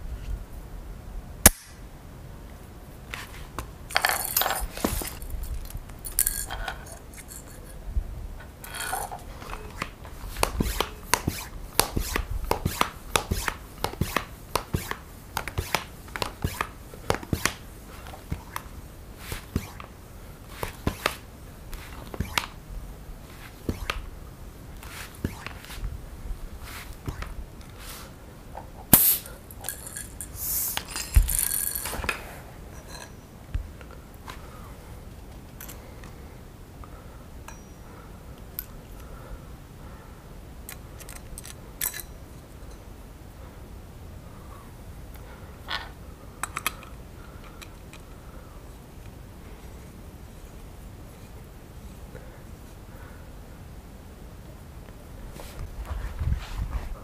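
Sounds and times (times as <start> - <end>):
metal fittings clicking and clinking: 3.9 - 7.8, 8.6 - 9.9, 28.9 - 32.2.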